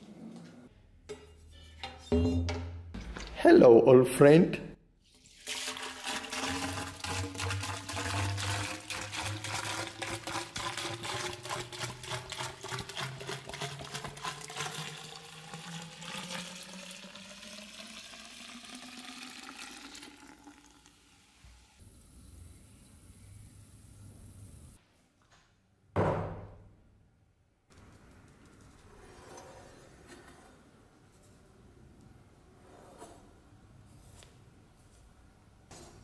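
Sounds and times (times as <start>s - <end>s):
liquid pouring into plastic bucket: 5.2s - 21.1s.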